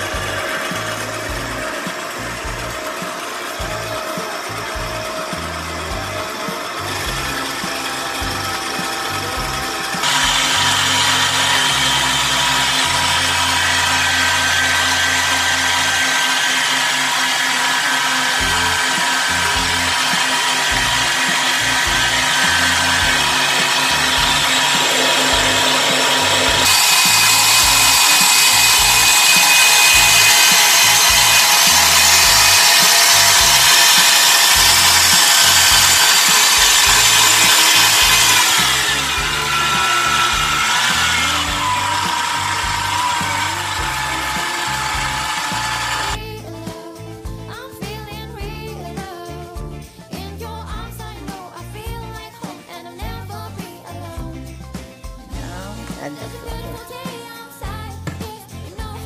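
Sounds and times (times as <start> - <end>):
electric stand mixer running: 0.0 - 46.2.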